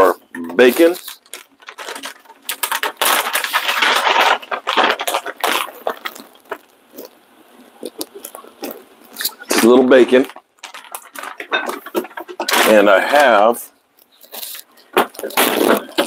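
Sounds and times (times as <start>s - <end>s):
bacon crumbling and crackling: 0.6s - 13.0s.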